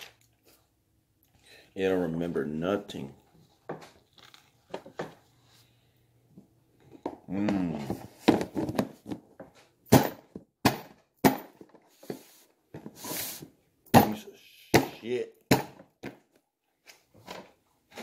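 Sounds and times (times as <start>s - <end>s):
person humming: 7.3s - 8.0s.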